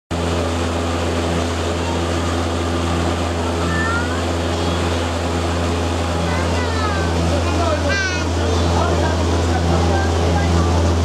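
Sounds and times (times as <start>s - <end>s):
boat engine droning: 0.1s - 11.0s.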